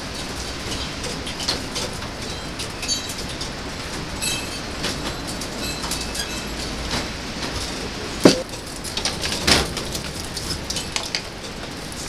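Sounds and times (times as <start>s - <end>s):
wind rattling greenhouse: 0.0s - 12.0s
sharp knocks: 8.2s - 8.5s.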